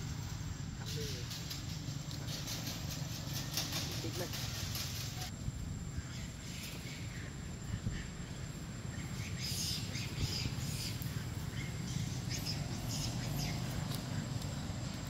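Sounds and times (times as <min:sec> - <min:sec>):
birds chirping: 0:00.0 - 0:15.0
low outdoor rumble: 0:00.0 - 0:15.0.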